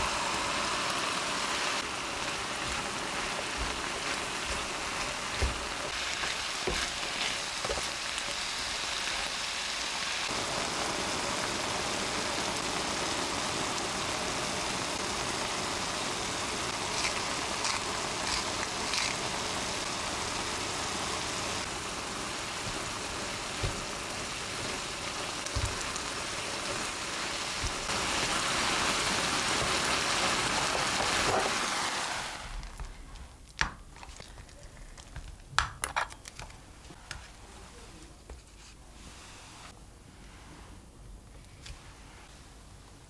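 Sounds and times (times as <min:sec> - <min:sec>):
food sizzling in a frying pan: 0:00.0 - 0:32.8
spatula stirring food: 0:01.8 - 0:09.3.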